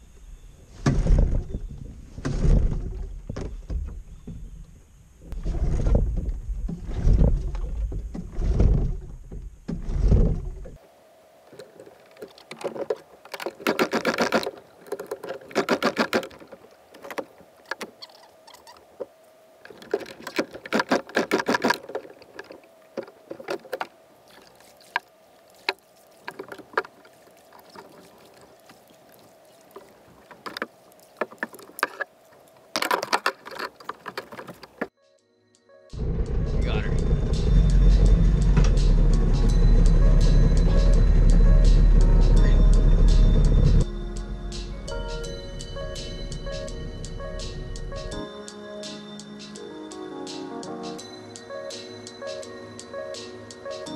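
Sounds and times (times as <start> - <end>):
outboard motor pull-start: 13.4 - 16.5.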